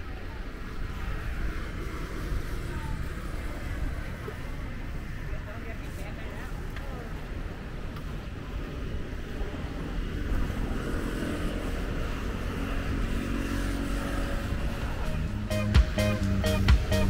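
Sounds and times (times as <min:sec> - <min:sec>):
road traffic rumble: 0:00.0 - 0:17.0
guitar music: 0:15.1 - 0:17.0.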